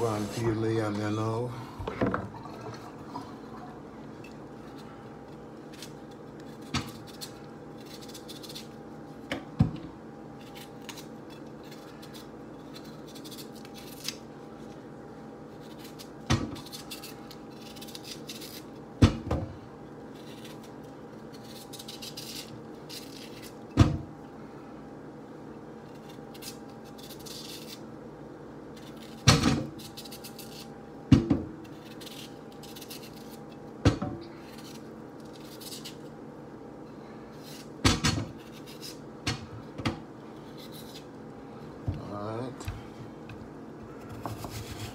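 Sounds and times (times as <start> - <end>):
steady low hum: 0.0 - 44.9
knife scraping yam: 4.2 - 9.2, 10.4 - 14.8, 15.4 - 18.8, 20.1 - 23.6, 25.8 - 27.9, 28.7 - 30.8, 31.6 - 33.6, 34.3 - 36.2, 37.3 - 39.1, 40.3 - 41.1, 43.9 - 44.9.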